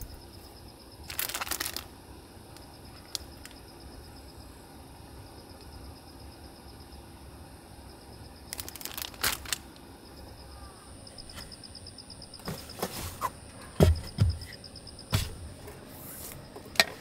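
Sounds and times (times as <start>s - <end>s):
faint insect trill: 0.0s - 17.0s
plastic packaging crinkling: 1.1s - 1.9s, 8.5s - 9.7s
wooden lid knocks and thud: 13.8s - 15.4s.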